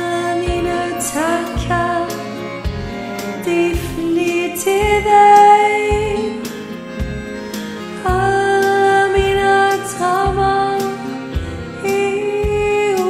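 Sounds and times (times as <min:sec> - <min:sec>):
backing track with soft beat: 0:00.0 - 0:13.0
woman singing long notes: 0:11.8 - 0:13.0.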